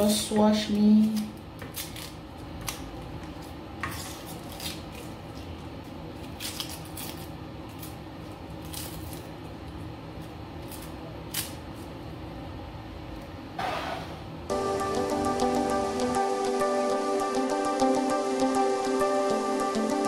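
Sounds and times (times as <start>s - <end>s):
steady low hum: 0.0s - 20.0s
knife scraping onion skin: 1.0s - 2.9s, 3.8s - 5.5s, 6.2s - 8.0s, 8.6s - 9.3s.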